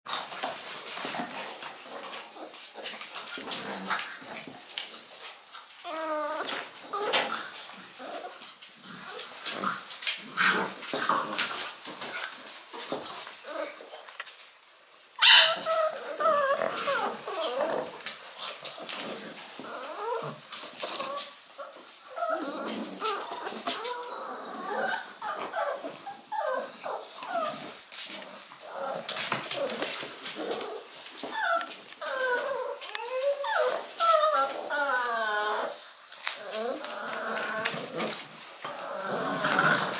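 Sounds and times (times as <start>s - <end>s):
puppies whining and whimpering: 5.7s - 8.4s, 15.2s - 18.1s, 18.9s - 27.8s, 28.6s - 39.9s.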